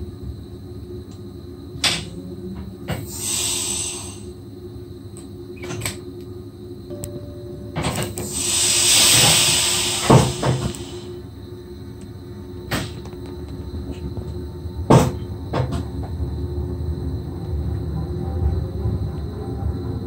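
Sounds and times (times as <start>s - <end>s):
train cab hum: 0.0s - 20.0s
train clunks: 1.1s - 4.3s, 6.9s - 11.2s, 12.6s - 16.4s
compressed air hiss: 2.9s - 4.4s, 8.2s - 11.2s.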